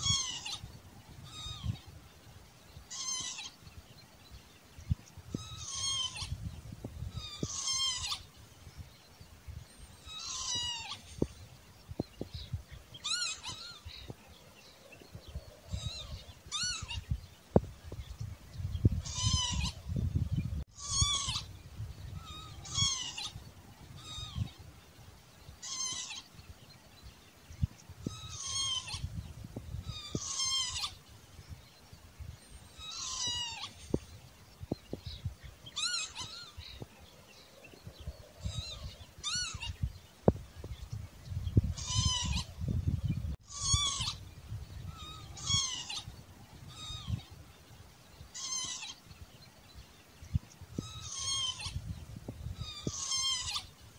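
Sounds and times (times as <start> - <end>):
lapwing wheezy calls: 0.0 - 1.8, 2.9 - 3.6, 5.4 - 6.4, 7.1 - 8.3, 10.0 - 11.3, 13.0 - 14.0, 15.6 - 17.0, 19.0 - 19.8, 20.8 - 21.5, 22.2 - 24.6, 25.6 - 26.3, 28.1 - 29.1, 29.8 - 31.0, 32.8 - 34.1, 35.8 - 36.8, 38.3 - 39.8, 41.6 - 42.6, 43.4 - 44.2, 44.8 - 47.3, 48.3 - 49.0, 50.8 - 51.9, 52.5 - 53.7.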